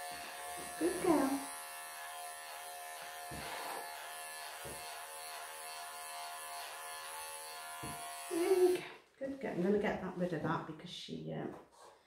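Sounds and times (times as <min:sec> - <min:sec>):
electric clippers buzzing: 0:00.0 - 0:08.8.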